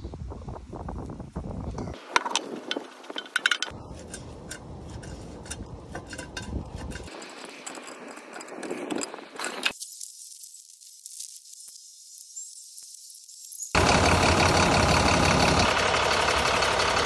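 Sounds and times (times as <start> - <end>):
light metallic clinks: 2.4 - 9.1.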